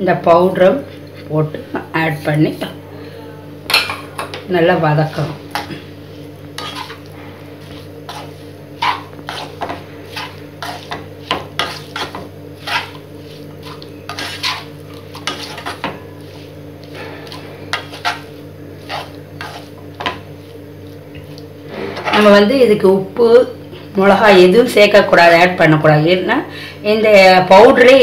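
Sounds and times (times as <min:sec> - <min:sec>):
steady low hum: 0:00.0 - 0:28.0
spatula scraping a pan: 0:06.6 - 0:20.5, 0:21.7 - 0:22.5.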